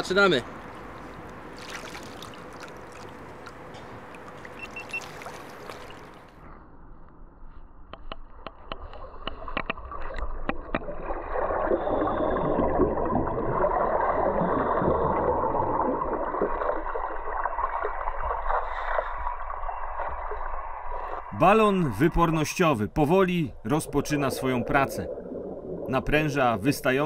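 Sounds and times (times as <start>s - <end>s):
air gurgling underwater: 9.8s - 19.0s, 23.6s - 27.0s.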